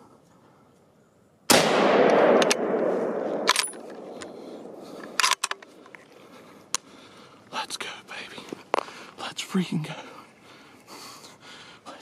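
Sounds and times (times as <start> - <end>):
rifle shot: 1.5 - 5.6.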